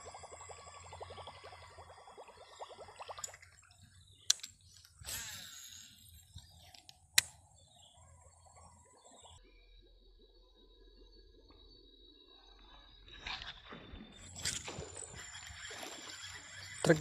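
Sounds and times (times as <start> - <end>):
line whirring off spool: 0.0 - 7.7, 13.2 - 17.0
fishing reel sharp click: 4.2 - 7.7.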